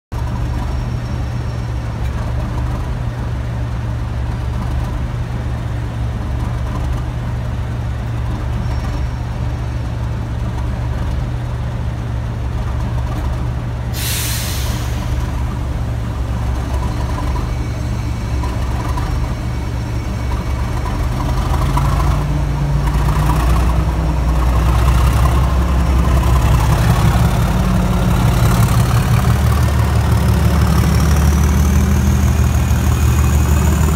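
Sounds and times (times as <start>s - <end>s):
diesel locomotive engine: 0.1s - 33.9s
air hiss: 13.9s - 15.2s.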